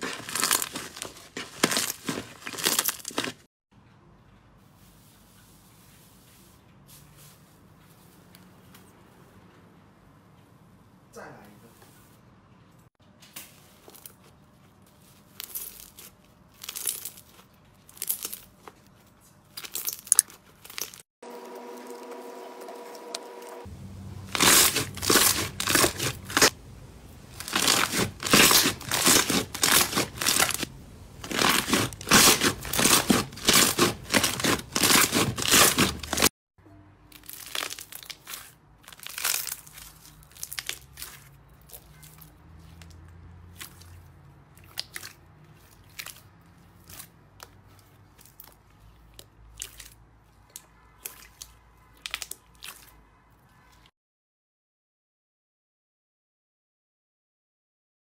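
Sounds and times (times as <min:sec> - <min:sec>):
crackly slime crunching: 0:00.0 - 0:03.5, 0:13.4 - 0:21.1, 0:24.2 - 0:36.3, 0:37.1 - 0:53.9.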